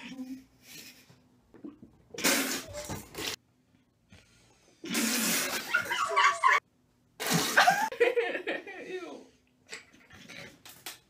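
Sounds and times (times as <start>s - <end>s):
person spluttering laughter: 5.2s - 6.6s.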